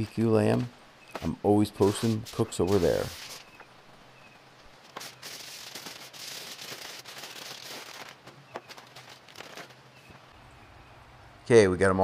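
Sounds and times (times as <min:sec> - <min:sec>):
aluminium foil crinkling: 0:01.2 - 0:03.5, 0:04.8 - 0:10.0.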